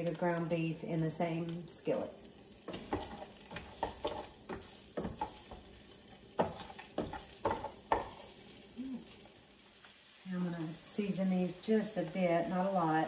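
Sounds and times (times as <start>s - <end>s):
vegetables sizzling: 0.0s - 13.0s
spatula scraping a pan: 2.6s - 8.6s.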